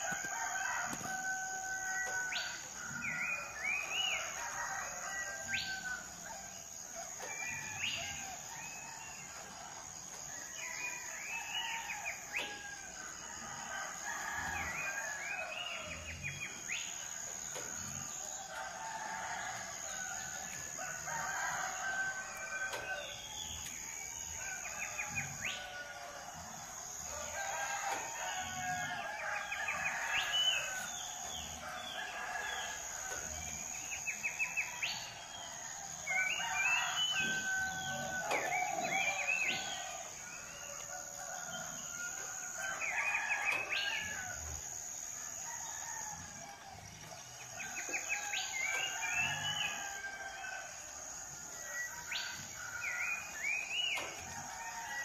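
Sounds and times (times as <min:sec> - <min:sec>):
roosters crowing: 0:00.0 - 0:55.0
songbirds chirping and trilling: 0:00.0 - 0:55.0.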